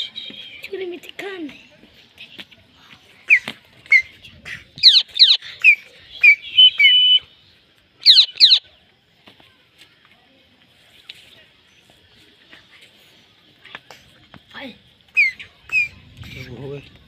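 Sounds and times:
parakeet whistled calls: 4.8s - 7.3s, 8.0s - 8.6s, 15.1s - 16.0s.

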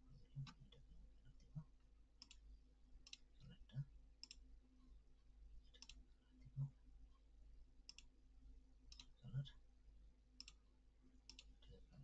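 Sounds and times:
computer mouse clicks: 2.2s - 2.4s, 3.0s - 3.2s, 4.2s - 4.4s, 5.8s - 6.0s, 7.9s - 8.1s, 8.9s - 9.2s, 10.4s - 10.6s, 11.2s - 11.5s.

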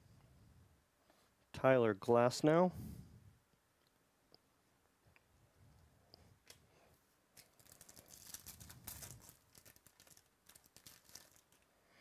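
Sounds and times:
foil wrapper tearing and crinkling: 7.4s - 11.6s
cards rustling: 7.4s - 11.7s.

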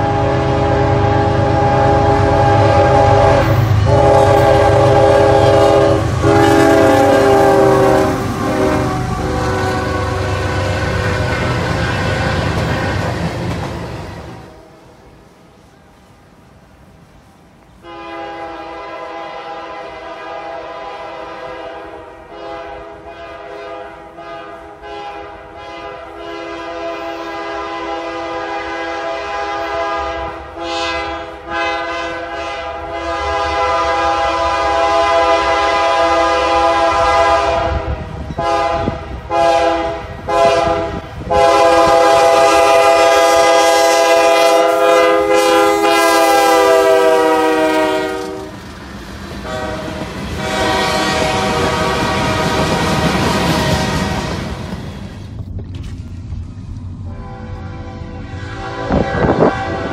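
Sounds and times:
locomotive air horn blasts: 0.0s - 12.3s, 17.8s - 48.6s, 49.4s - 54.5s, 57.1s - 59.9s
freight cars rumbling past: 0.0s - 15.2s.

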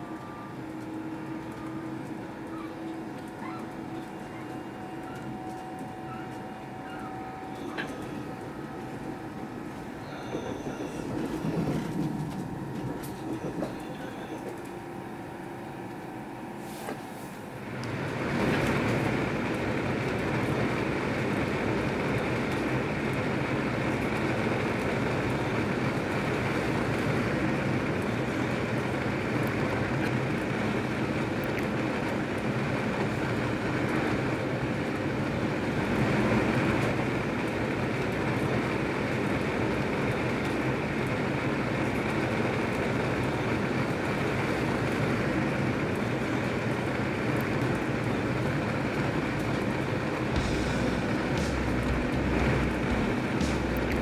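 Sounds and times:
train wheels rumbling on track: 0.0s - 54.0s
steady low hum: 50.0s - 54.0s.

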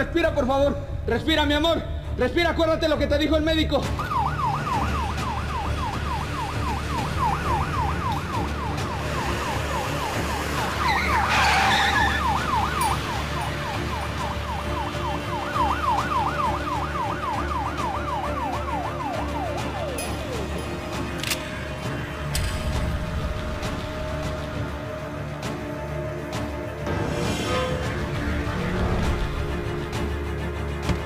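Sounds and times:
ambulance siren yelping: 3.8s - 21.2s
low vehicle drone: 20.0s - 30.8s.

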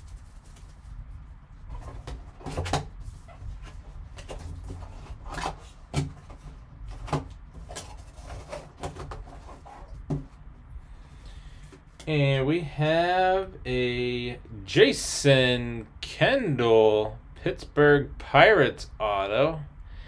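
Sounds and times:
cardboard and plastic scraping: 1.6s - 10.4s.

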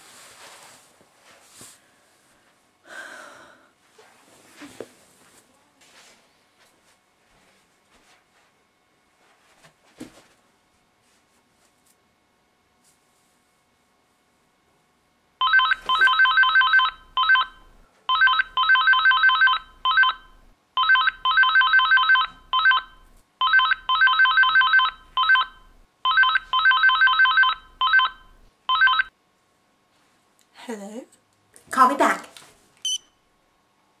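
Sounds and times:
mobile phone ringtone: 15.4s - 29.1s.

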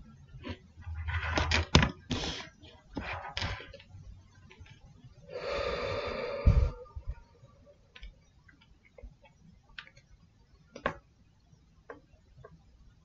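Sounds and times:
breathy rush of noise: 5.3s - 7.7s.

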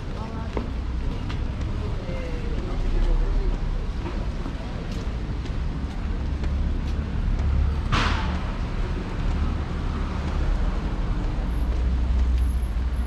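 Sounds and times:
street traffic rumbling: 0.0s - 13.0s.

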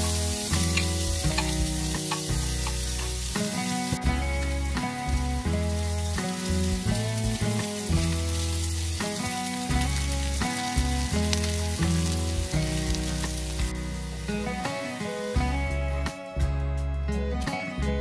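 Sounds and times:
onion sizzling in a pan: 0.0s - 16.1s
background music with bass: 0.0s - 18.0s.

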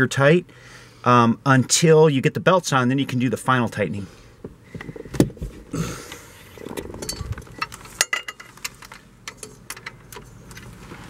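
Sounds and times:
metallic clicks and knocks of tools: 7.0s - 10.7s.

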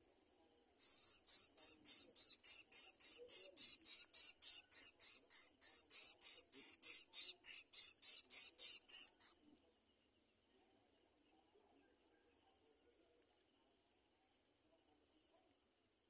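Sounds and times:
nestlings hissing: 0.8s - 9.3s.

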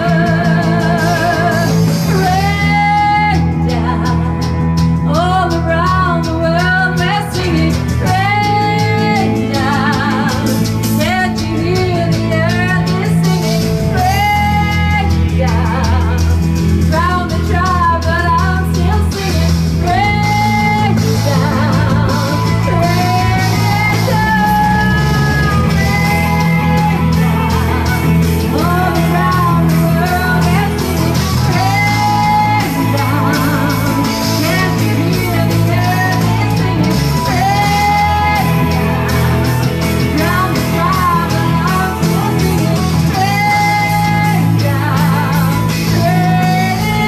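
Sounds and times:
bass guitar: 0.0s - 47.0s
drums: 0.0s - 47.0s
electric guitars: 0.0s - 47.0s
woman singing with vibrato: 0.0s - 47.0s.

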